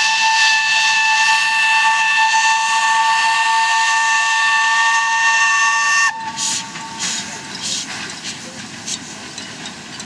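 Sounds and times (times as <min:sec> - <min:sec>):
steam locomotive whistle blowing: 0:00.0 - 0:07.8.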